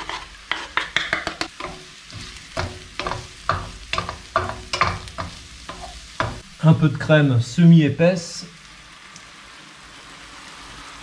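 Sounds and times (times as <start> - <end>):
wooden spatula scraping pan: 0.0 - 6.4
sizzle of frying in oil: 0.0 - 11.0.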